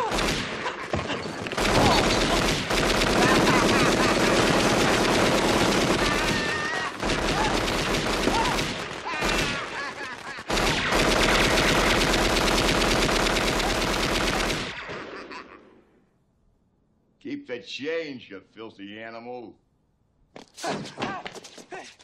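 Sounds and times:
submachine gun fire: 0.0s - 0.7s, 1.3s - 15.1s.

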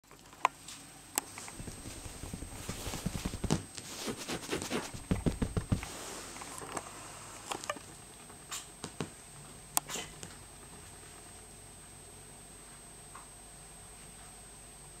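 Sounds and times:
kitten paws thumping on sofa: 1.4s - 6.2s.

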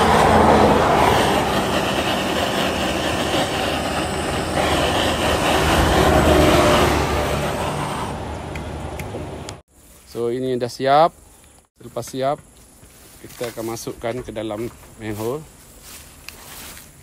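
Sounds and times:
gas torch flame rushing: 0.0s - 8.6s.

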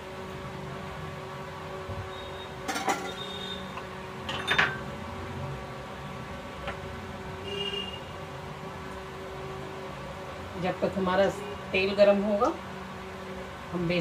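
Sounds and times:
utensils clattering on counter: 2.7s - 3.3s, 4.3s - 4.8s.

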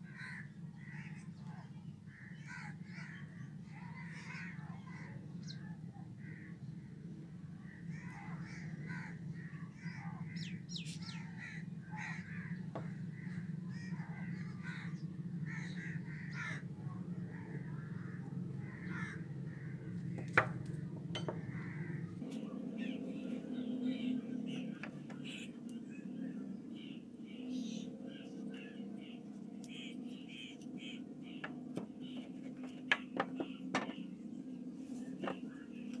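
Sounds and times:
crows cawing: 0.0s - 1.3s, 2.1s - 5.2s, 6.2s - 6.6s, 7.7s - 16.7s, 17.3s - 22.2s
steady low hum: 0.0s - 36.0s.

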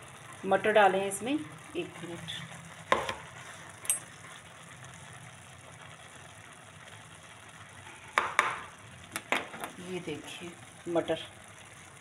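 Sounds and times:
low steady hum: 0.0s - 12.0s
pots and utensils clanking: 3.8s - 4.1s.

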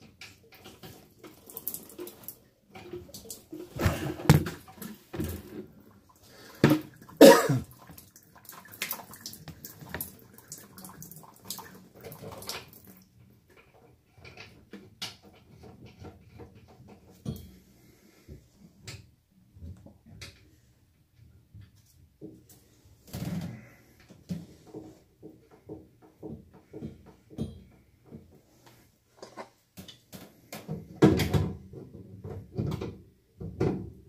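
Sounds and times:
water splashing and sloshing: 0.0s - 18.9s.

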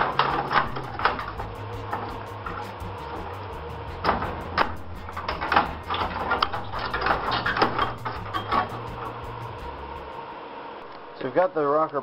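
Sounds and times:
rusted sheet metal crunching: 0.0s - 9.6s.

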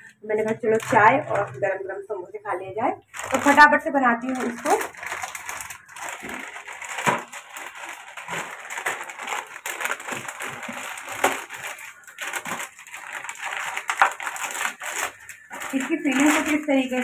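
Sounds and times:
plastic packet crinkling: 0.4s - 1.9s, 3.1s - 17.0s
packet tearing open: 4.3s - 16.6s.

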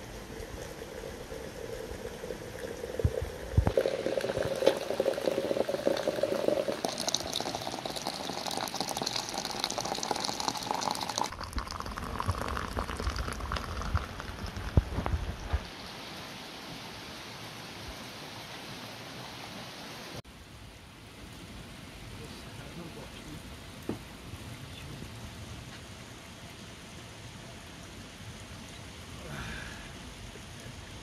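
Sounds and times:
water pouring into teapot: 0.0s - 15.6s.

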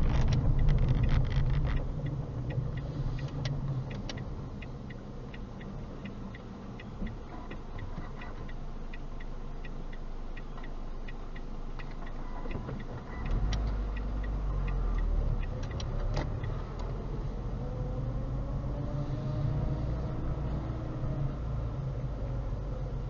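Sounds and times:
light ticking: 0.0s - 18.8s
road rumble: 0.0s - 23.0s
car engine accelerating: 10.8s - 23.0s.

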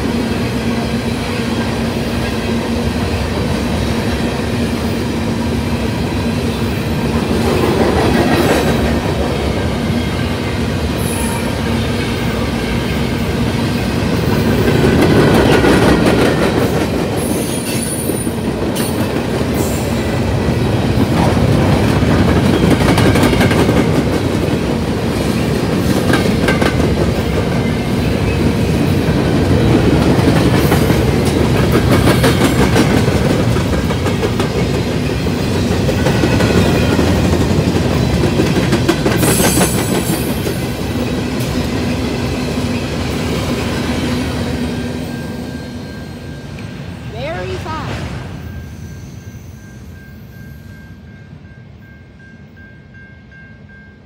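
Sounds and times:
freight train wheels clattering: 7.0s - 44.6s
high-pitched wheel squeals: 48.5s - 50.7s.

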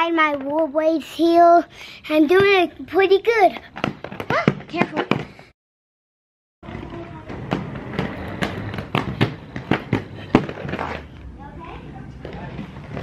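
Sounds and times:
inline skates rolling on concrete: 2.1s - 5.5s, 6.6s - 13.0s
skate wheels clacking on pavement: 3.7s - 5.5s, 6.6s - 13.0s.

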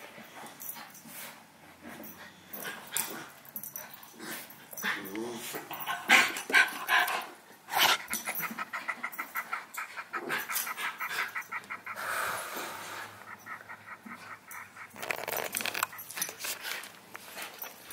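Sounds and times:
dogs panting: 0.0s - 17.9s
paws scuffling and clicking: 0.4s - 12.0s, 13.2s - 17.9s
breathy huffs: 8.2s - 16.0s.

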